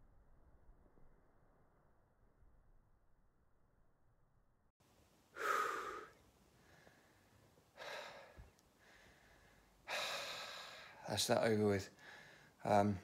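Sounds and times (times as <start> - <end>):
man breathing heavily: 5.3 - 11.1, 11.9 - 12.6.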